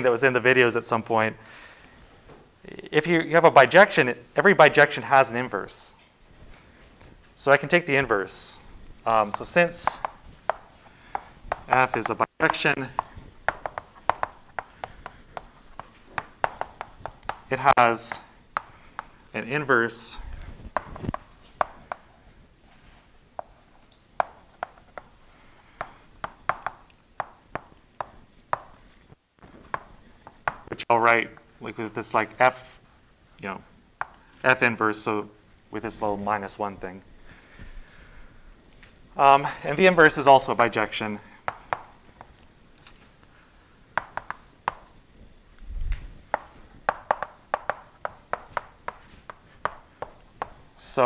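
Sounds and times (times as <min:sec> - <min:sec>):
chalk tapping on a chalkboard: 0:09.1 - 0:19.3, 0:20.7 - 0:29.0, 0:29.7 - 0:30.7, 0:34.0 - 0:34.2, 0:41.4 - 0:42.4, 0:43.9 - 0:45.0, 0:46.2 - 0:51.0.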